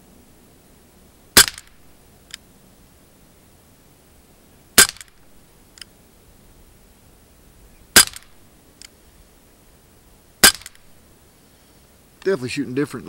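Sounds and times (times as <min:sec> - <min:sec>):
air pistol shots: 0:01.4 - 0:01.9, 0:04.8 - 0:05.3, 0:07.9 - 0:08.4, 0:10.4 - 0:10.9.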